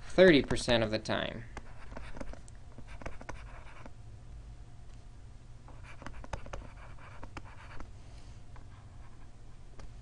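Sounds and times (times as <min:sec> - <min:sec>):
low steady hum: 0:00.0 - 0:10.0
stylus writing on a tablet: 0:01.6 - 0:03.9, 0:05.7 - 0:07.9, 0:08.6 - 0:09.3.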